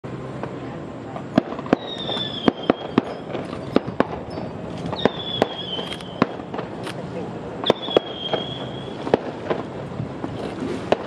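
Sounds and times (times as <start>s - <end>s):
fireworks sharp bangs: 0.1s - 11.0s
falling firework whistles: 1.4s - 6.7s, 7.6s - 9.8s.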